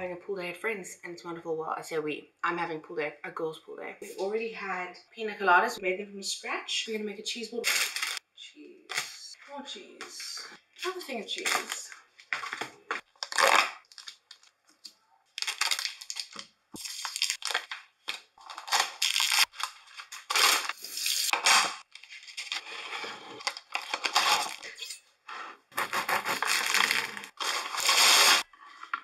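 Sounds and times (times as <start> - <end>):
foil and cardboard tearing: 7.6 - 8.2, 11.4 - 14.4, 15.4 - 24.7, 25.7 - 28.9
plastic punnet crackling: 10.8 - 22.6.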